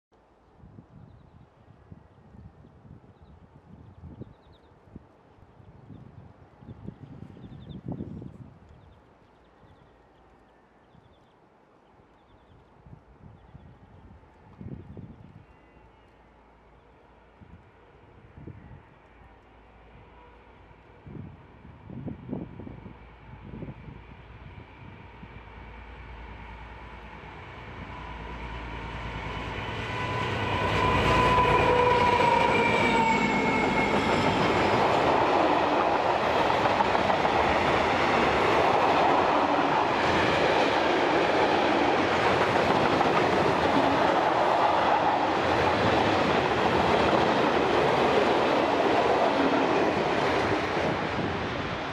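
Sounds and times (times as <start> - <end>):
diesel locomotives passing: 15.3 - 51.9.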